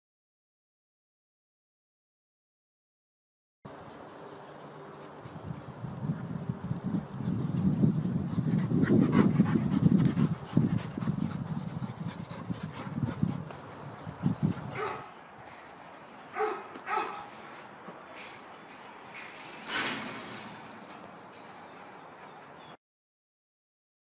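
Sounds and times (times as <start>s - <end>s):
dogs barking: 14.6s - 15.3s, 16.3s - 17.4s.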